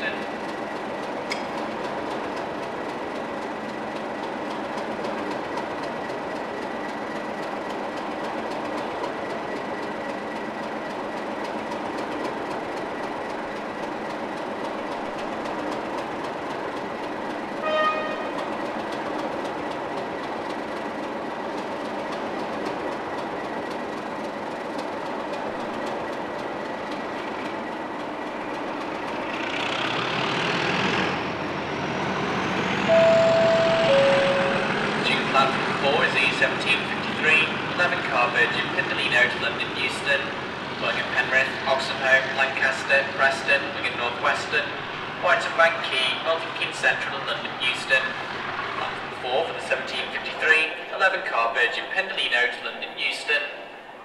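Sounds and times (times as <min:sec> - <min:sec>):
diesel locomotive engine idling: 0:00.0 - 0:54.0
engine powering up with whistle: 0:17.6 - 0:18.3, 0:31.1 - 0:34.8
brief horn toot: 0:17.6 - 0:18.4, 0:32.9 - 0:34.7
two-tone train horn: 0:17.6 - 0:18.5, 0:32.9 - 0:34.8.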